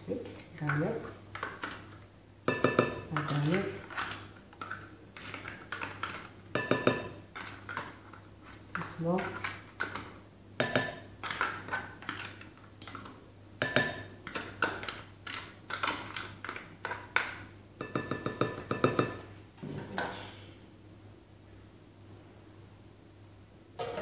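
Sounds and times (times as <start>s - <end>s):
spoon tapping jar: 2.5s - 3.4s, 6.5s - 7.2s, 10.6s - 11.1s, 13.6s - 14.1s, 17.8s - 19.2s.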